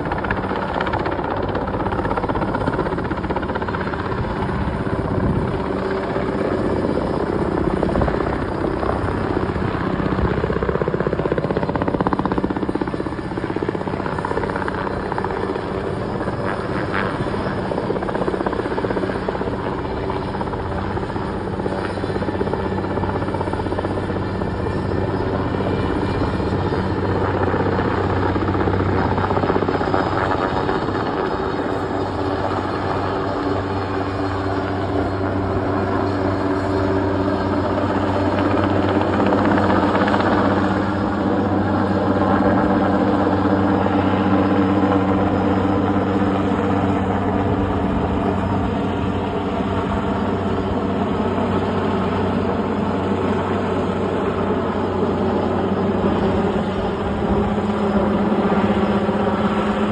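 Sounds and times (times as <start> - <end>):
helicopter rotor drone: 0.0 - 59.9.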